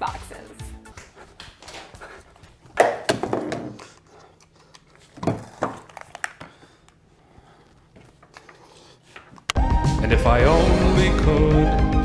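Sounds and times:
headphones and controller handling: 1.4s - 7.0s, 7.6s - 9.6s.

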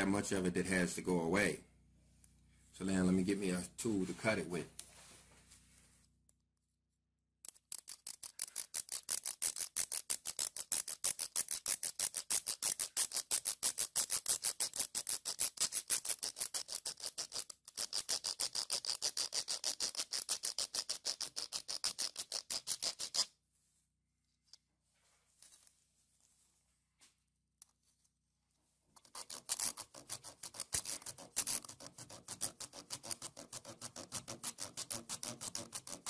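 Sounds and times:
knife sawing plastic: 7.5s - 23.3s, 29.0s - 36.0s.

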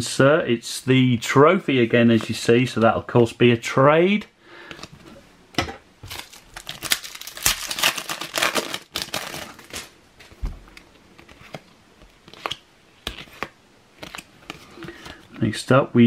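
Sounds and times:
foil pack tearing and crinkling: 6.1s - 10.0s
cards rustling and clicking: 6.1s - 15.5s.

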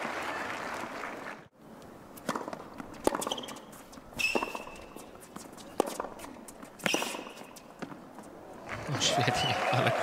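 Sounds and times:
crowd applause: 0.0s - 1.5s, 8.7s - 10.0s
tennis ball bouncing on hard court: 2.2s - 8.2s
short high squeak: 4.2s - 5.0s.

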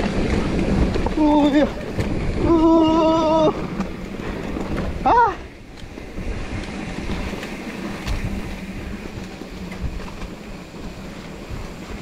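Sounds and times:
bike frame rattling: 0.0s - 12.0s
bike rolling over dirt trail: 0.0s - 12.0s.

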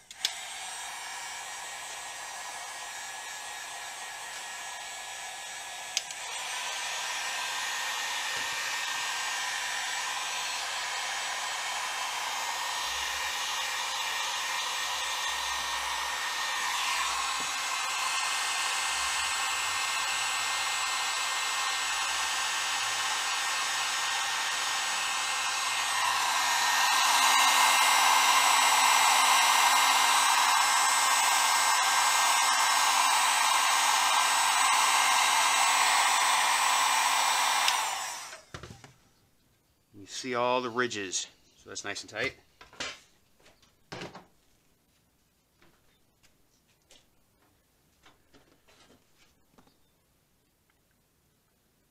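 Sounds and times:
heat gun blowing air: 0.0s - 38.7s.

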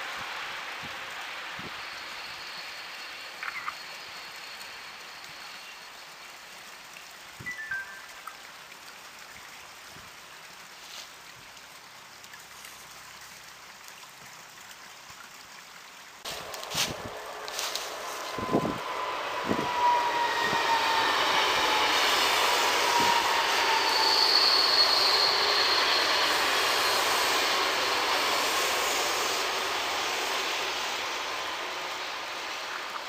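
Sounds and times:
train passing: 0.0s - 6.2s, 16.2s - 33.0s
thin whine: 16.3s - 33.0s
high wheel squeal: 16.8s - 32.7s.

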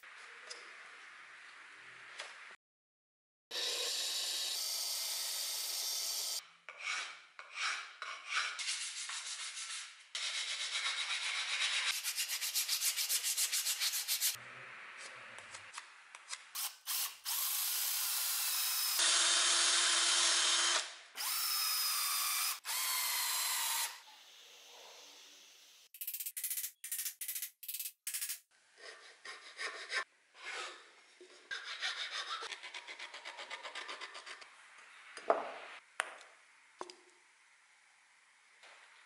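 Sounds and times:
wood handle being sanded and rasped: 6.7s - 14.4s, 28.8s - 30.0s.

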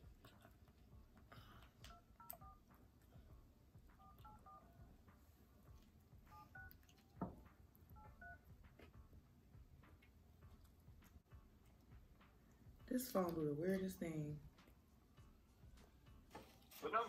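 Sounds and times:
phone keypad beeps: 1.9s - 2.6s, 4.0s - 4.7s, 6.3s - 6.8s, 8.0s - 8.4s.

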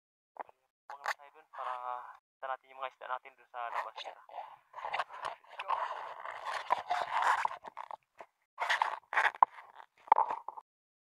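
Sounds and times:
rubbing on camera: 3.7s - 8.0s, 8.6s - 10.6s.

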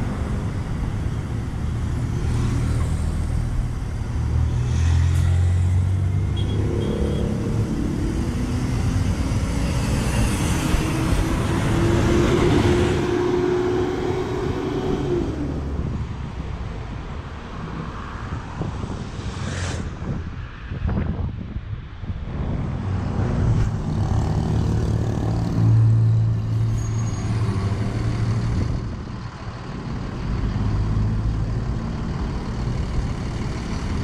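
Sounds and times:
street traffic: 0.0s - 34.0s
bus engine accelerating: 5.0s - 16.6s, 23.8s - 34.0s.

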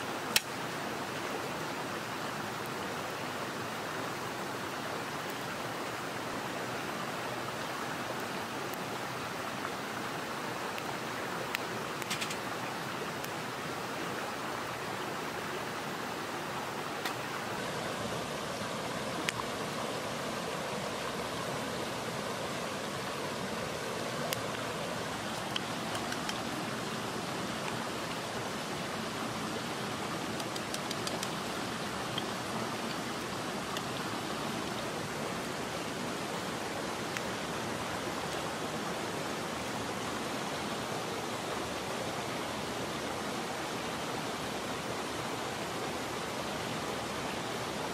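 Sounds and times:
mountain stream rushing: 0.0s - 47.9s
faint sharp clicks: 0.3s - 0.6s, 11.5s - 12.5s, 17.0s - 17.3s, 19.2s - 19.5s, 25.3s - 26.6s, 30.3s - 31.5s.

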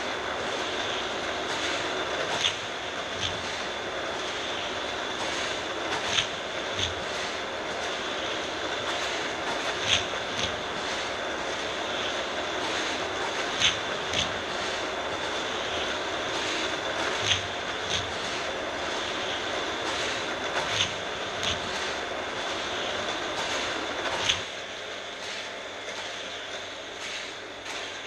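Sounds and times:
toy track booster motor whir: 1.5s - 3.7s, 23.4s - 24.5s.

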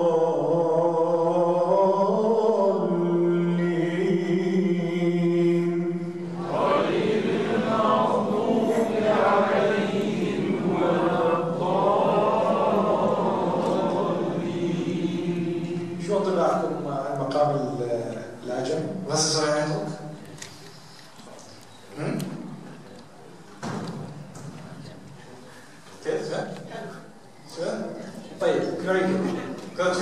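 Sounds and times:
man chanting recitation: 0.0s - 20.2s, 27.5s - 30.0s.

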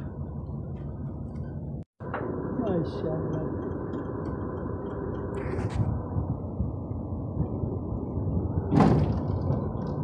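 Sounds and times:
diesel engine running: 0.0s - 10.0s.

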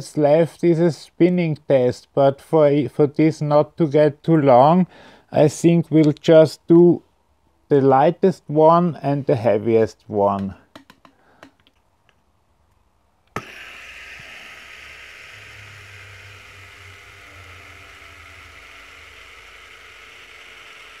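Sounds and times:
fidget spinner whirring: 13.3s - 21.0s.

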